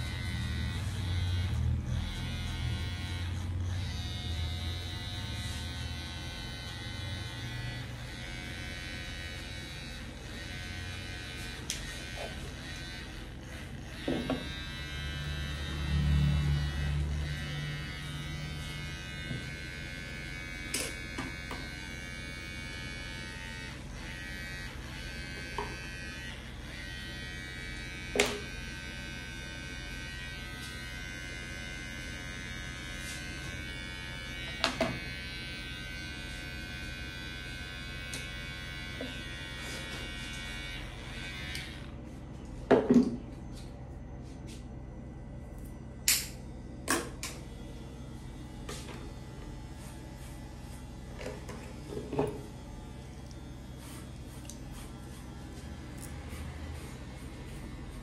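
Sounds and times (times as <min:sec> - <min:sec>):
electric hair clipper buzzing: 0:00.0 - 0:42.0, 0:46.1 - 0:58.0.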